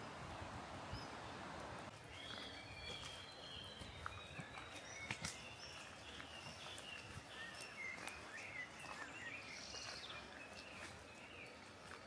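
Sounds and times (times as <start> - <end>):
birds chirping and warbling: 0.8 - 12.0.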